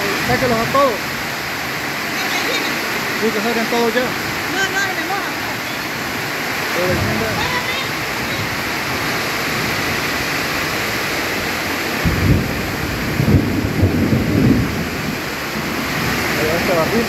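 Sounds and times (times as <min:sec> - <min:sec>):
heavy rain: 0:00.0 - 0:17.0
thunder rumbling: 0:06.8 - 0:17.0.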